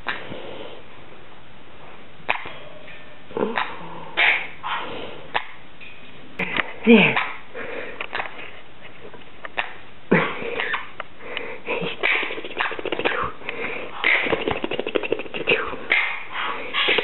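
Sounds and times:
parrot squawking and chirping: 0:12.0 - 0:13.3, 0:16.8 - 0:17.0.

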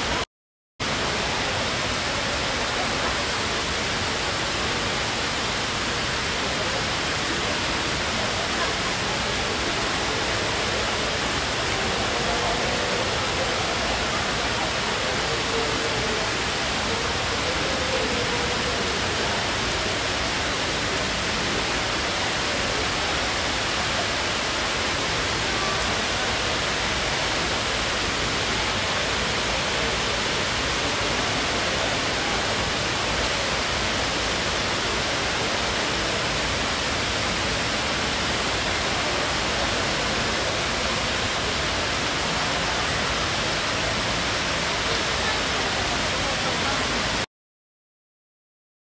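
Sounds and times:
water cascading into pool: 0:00.8 - 0:47.3.

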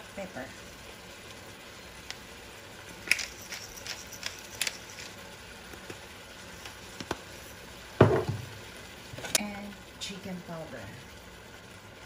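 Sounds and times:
pepper grinder clicking: 0:03.0 - 0:05.2.

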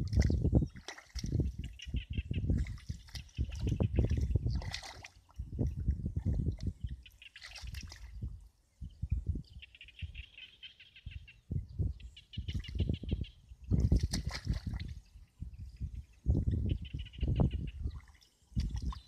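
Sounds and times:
hands splashing in muddy water: 0:00.0 - 0:01.5, 0:02.6 - 0:06.7, 0:07.3 - 0:08.1, 0:13.8 - 0:14.9.

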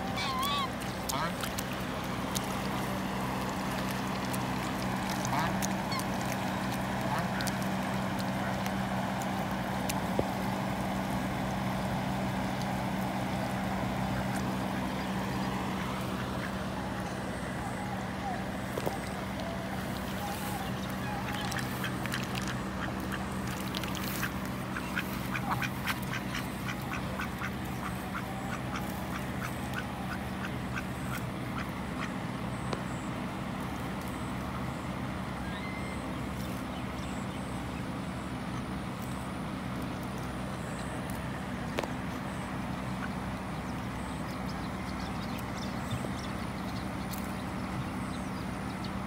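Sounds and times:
ducks quacking: 0:00.0 - 0:01.6, 0:02.4 - 0:09.4, 0:12.3 - 0:32.2
steady low hum: 0:00.0 - 0:49.0.

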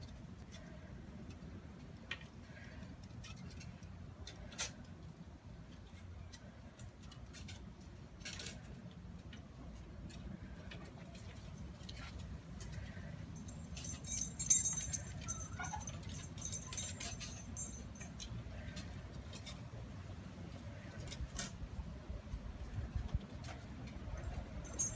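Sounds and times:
dog collar tags jingling: 0:12.7 - 0:18.8, 0:24.0 - 0:24.9.

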